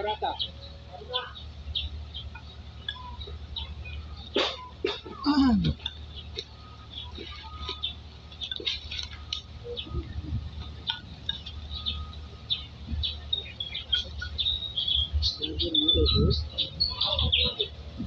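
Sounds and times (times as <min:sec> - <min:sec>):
small birds chirping: 0:00.0 - 0:18.0.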